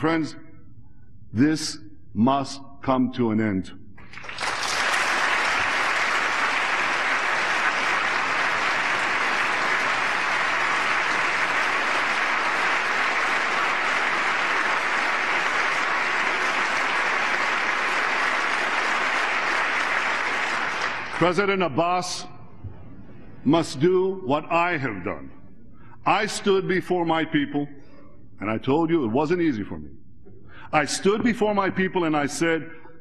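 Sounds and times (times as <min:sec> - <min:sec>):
large audience applauding: 0:04.0 - 0:21.4.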